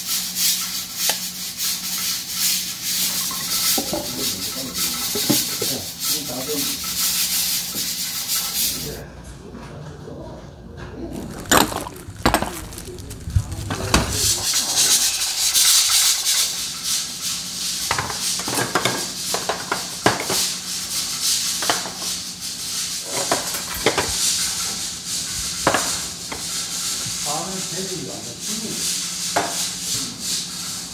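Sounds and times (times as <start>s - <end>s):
stew boiling with hiss and pops: 0.0s - 6.1s, 11.1s - 23.2s.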